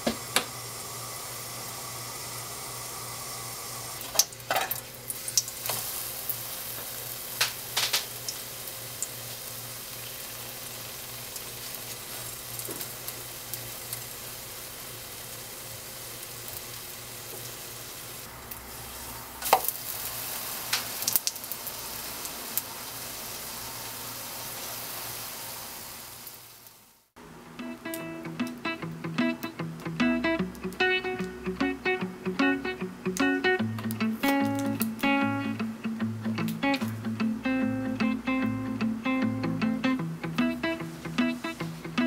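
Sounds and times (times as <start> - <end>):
batter sizzling in oil: 0.0 - 27.2.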